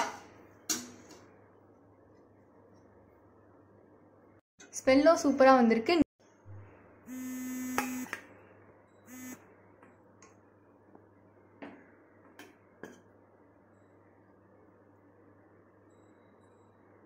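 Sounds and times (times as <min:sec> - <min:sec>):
steady buzzing tone: 0:07.1 - 0:08.1, 0:09.1 - 0:09.5.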